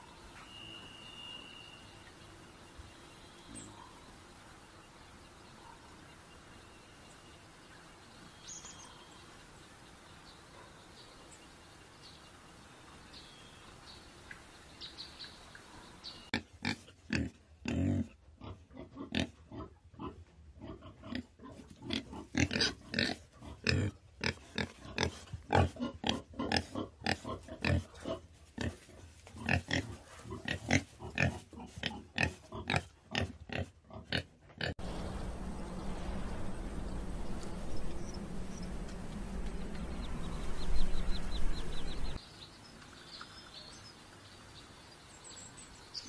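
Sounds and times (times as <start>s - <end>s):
faint bird chirps: 0.0s - 12.4s
boar grunting and snorting: 16.3s - 34.9s.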